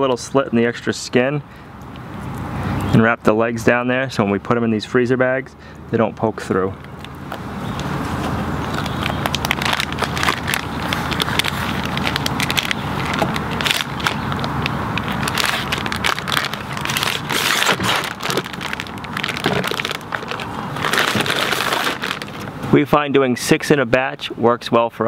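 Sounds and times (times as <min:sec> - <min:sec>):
plastic bag crinkling: 0:08.0 - 0:22.6.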